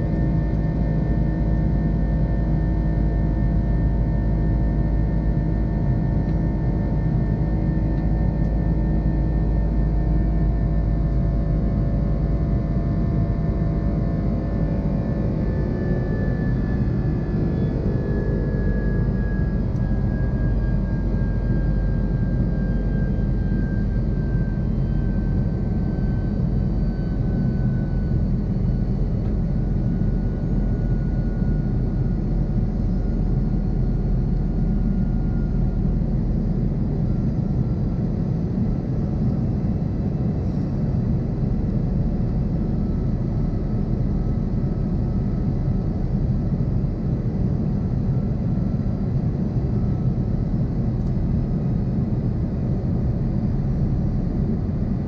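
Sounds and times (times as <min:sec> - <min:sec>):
jet engines droning: 0:00.0 - 0:55.0.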